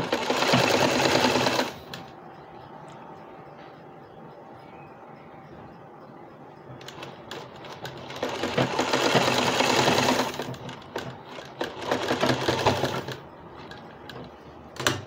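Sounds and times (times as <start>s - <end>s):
sewing machine stitching: 0.0s - 2.0s, 6.8s - 15.0s.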